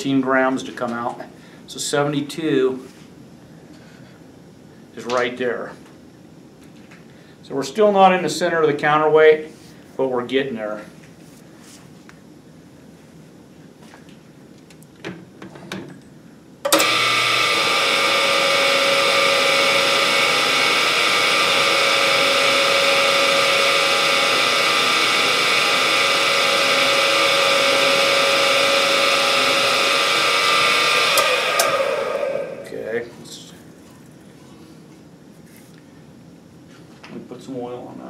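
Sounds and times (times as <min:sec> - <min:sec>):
drill press whining: 0:16.6 - 0:32.8
drill boring into metal: 0:16.7 - 0:32.7.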